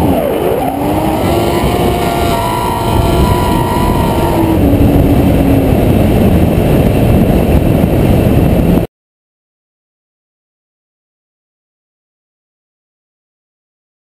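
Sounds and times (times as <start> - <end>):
car engine revs dropping: 0.0 - 6.1
wind rumble: 0.0 - 8.9.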